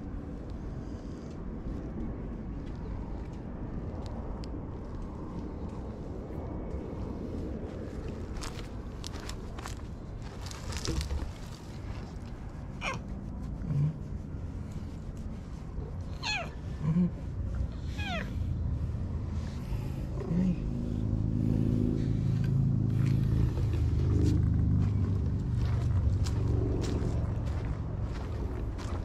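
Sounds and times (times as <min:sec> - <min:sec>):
low steady motor drone: 0:00.0 - 0:29.0
cat meowing: 0:12.8 - 0:13.0, 0:16.1 - 0:16.6, 0:17.9 - 0:18.4.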